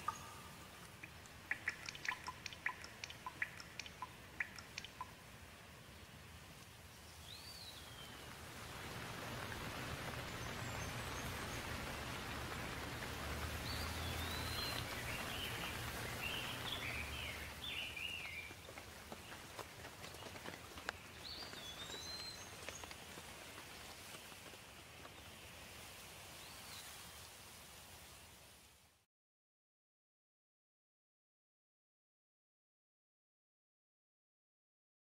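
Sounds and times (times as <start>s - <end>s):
bird chirping: 0.0s - 5.2s, 13.6s - 18.6s, 20.9s - 22.9s
raindrops ticking on surfaces: 0.0s - 27.2s
rain falling: 0.0s - 28.9s.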